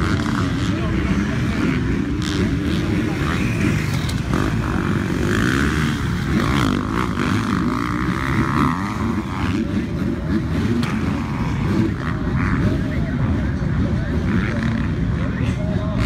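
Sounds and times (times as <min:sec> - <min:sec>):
dirt bike engines revving: 0:00.0 - 0:16.0.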